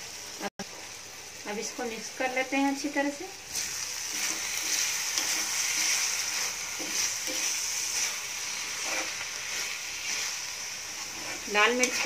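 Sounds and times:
onions sizzling in a pan: 0.0s - 12.0s
metal spatula scraping: 3.5s - 12.0s.

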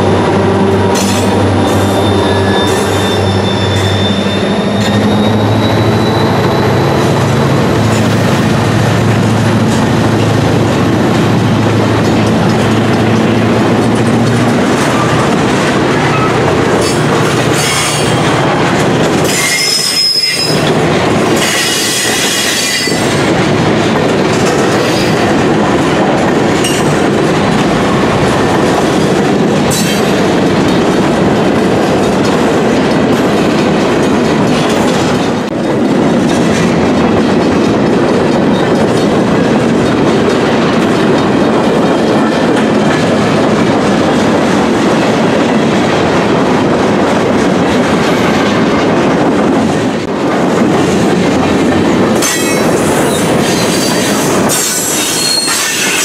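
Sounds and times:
diesel locomotive drone: 0.0s - 56.0s
freight cars rumbling and clattering: 0.0s - 56.0s
high-pitched wheel squeal: 1.0s - 6.9s, 19.3s - 20.6s, 52.4s - 56.0s.

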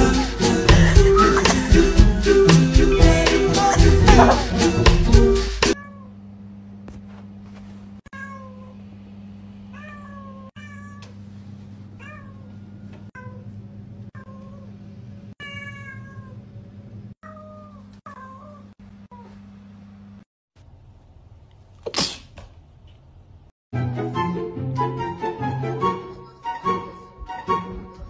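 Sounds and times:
cat meowing: 8.1s - 8.8s, 9.7s - 11.1s, 15.4s - 16.4s.

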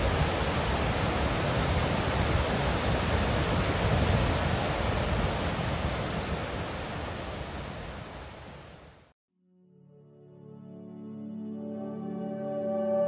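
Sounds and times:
stream rushing over boulders: 0.0s - 9.1s.

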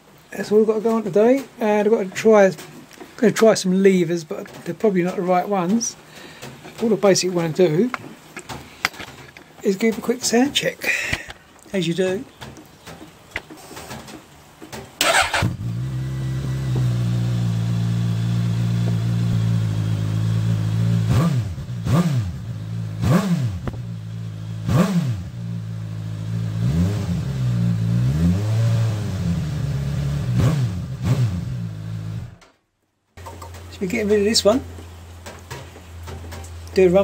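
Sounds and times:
motorcycle engine idling and revving: 15.0s - 32.4s.

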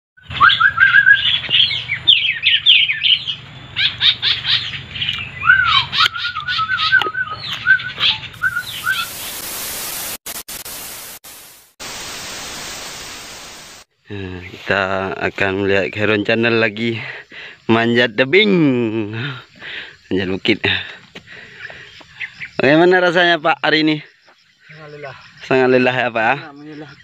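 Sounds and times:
small birds chirping and whistling: 0.2s - 9.4s, 21.2s - 23.0s, 23.8s - 27.0s
loud steady hiss: 8.4s - 13.9s.

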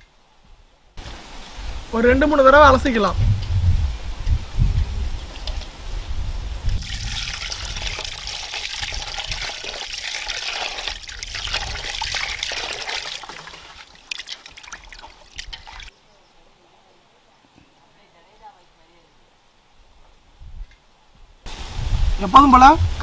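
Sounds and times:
water pouring and splashing: 6.6s - 15.9s
water dripping: 6.7s - 15.9s.

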